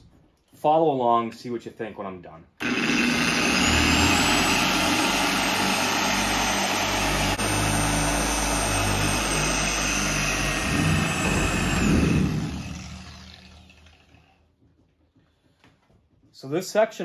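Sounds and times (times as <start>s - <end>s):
polisher motor whine: 2.6s - 14.2s.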